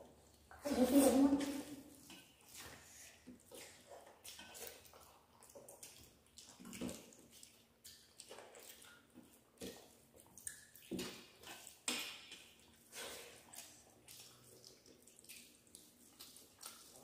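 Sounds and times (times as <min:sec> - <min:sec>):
mouths chewing and smacking: 0:01.2 - 0:17.0
fingers squishing food on plates: 0:01.3 - 0:17.0.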